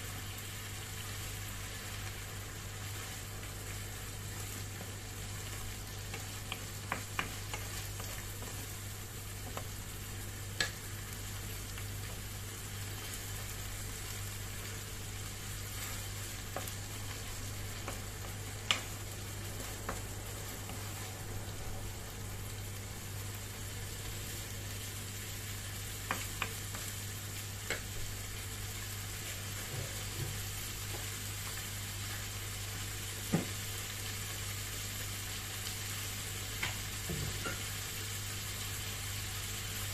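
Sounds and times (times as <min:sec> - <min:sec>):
steady low hum: 0:00.0 - 0:38.0
food sizzling in a frying pan: 0:00.0 - 0:39.9
wooden spatula tapping a pan: 0:06.0 - 0:08.7, 0:09.4 - 0:09.8, 0:16.5 - 0:16.8, 0:17.8 - 0:19.0, 0:26.0 - 0:26.9, 0:27.6 - 0:27.9, 0:33.3 - 0:33.6.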